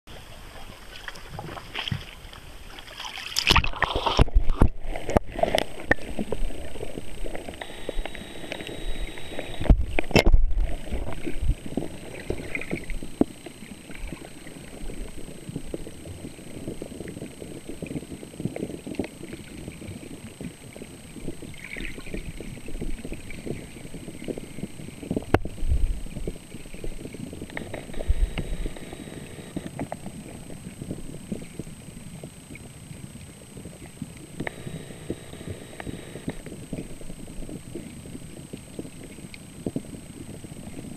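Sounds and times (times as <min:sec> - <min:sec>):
muffled underwater rumble: 0:03.5 - 0:40.9.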